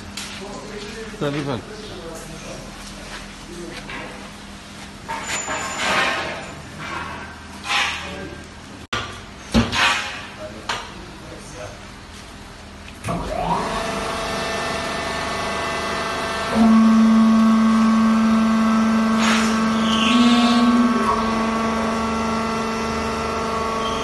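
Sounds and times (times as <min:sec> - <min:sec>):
loud steady hum: 0:00.0 - 0:24.0
hydraulic pump motor whine: 0:13.1 - 0:24.0.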